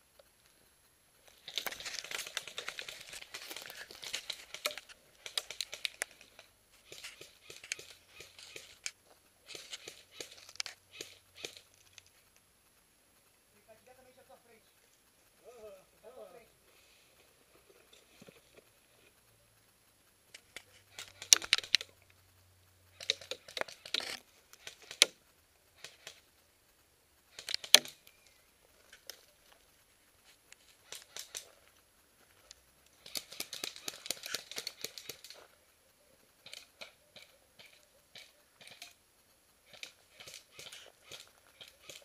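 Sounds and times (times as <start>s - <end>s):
twigs snapping: 1.3s - 12.4s.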